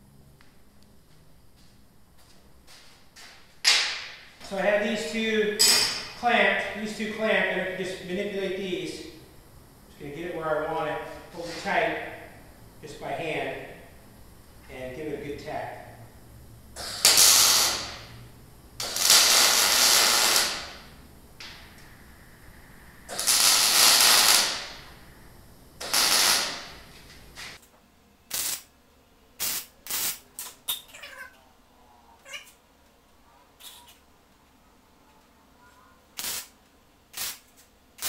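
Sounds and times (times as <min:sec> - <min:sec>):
welder hissing: 0:16.8 - 0:18.2, 0:18.8 - 0:27.6, 0:28.3 - 0:28.7, 0:29.4 - 0:30.6, 0:36.2 - 0:38.0.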